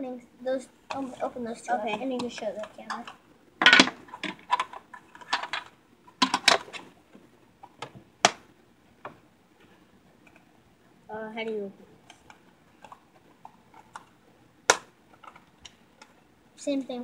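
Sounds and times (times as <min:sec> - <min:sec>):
plastic and card packaging crackling: 0:01.0 - 0:07.0, 0:12.0 - 0:16.2.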